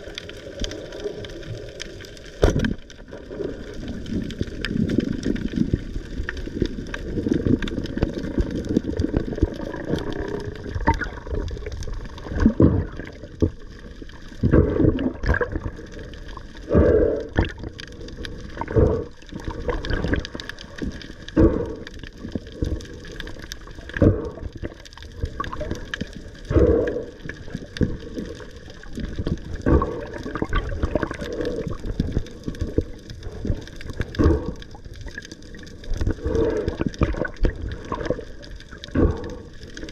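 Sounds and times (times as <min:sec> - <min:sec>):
muffled underwater rushing: 0:00.0 - 0:39.9
water surges: 0:00.0 - 0:39.9.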